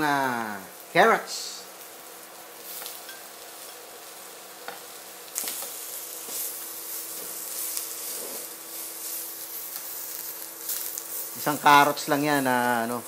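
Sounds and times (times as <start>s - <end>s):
vegetables sizzling in oil: 0.0s - 13.0s
spatula scraping a pan: 5.4s - 9.5s.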